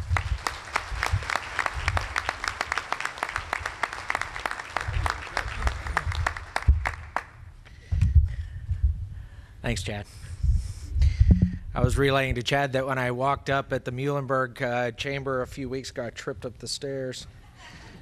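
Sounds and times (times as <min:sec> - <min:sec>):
audience applauding: 0:00.0 - 0:07.4
low thumps: 0:11.2 - 0:12.0.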